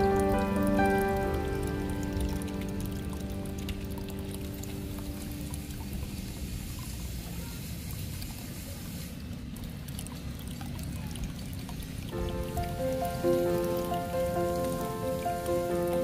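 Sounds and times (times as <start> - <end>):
background music: 0.0 - 6.1, 12.2 - 16.0.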